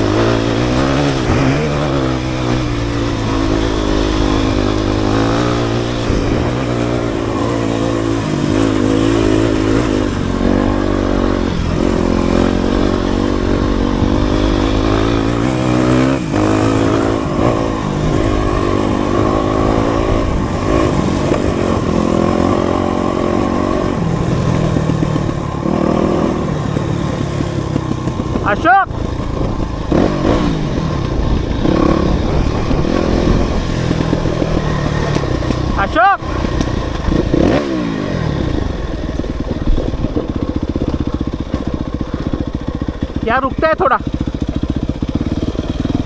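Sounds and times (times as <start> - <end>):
dirt bike engine revving: 0.0 - 46.0.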